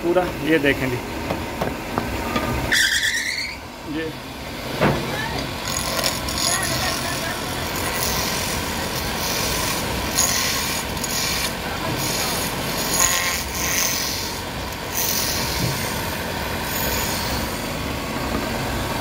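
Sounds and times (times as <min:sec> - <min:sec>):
wood lathe running: 0:05.5 - 0:19.0
chisel rasping on wood: 0:05.6 - 0:15.8.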